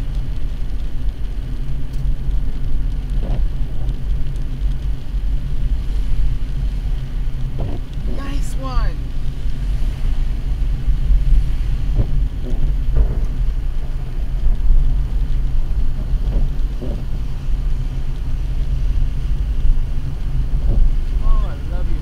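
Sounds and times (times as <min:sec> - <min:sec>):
car engine and road noise: 0:00.0 - 0:22.0
tyres hissing on wet pavement: 0:00.0 - 0:22.0.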